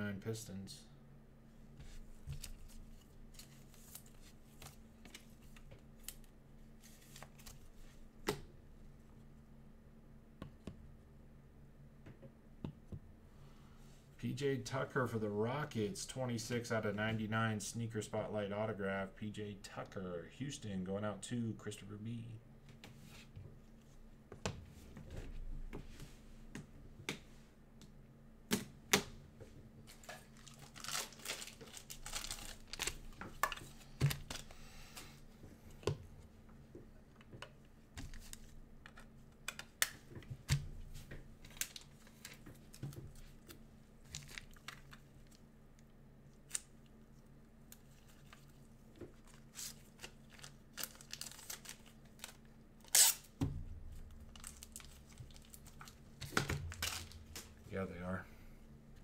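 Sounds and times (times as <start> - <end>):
faint steady hum: 0.0 - 59.0
plastic sleeves crinkling: 29.8 - 35.0, 41.0 - 53.4, 54.0 - 57.6.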